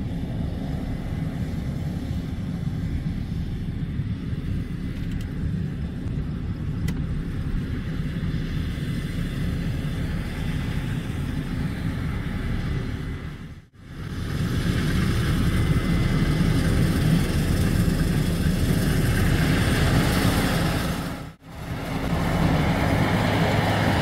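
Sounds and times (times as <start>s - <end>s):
tractor engine rumbling: 0.0s - 24.0s.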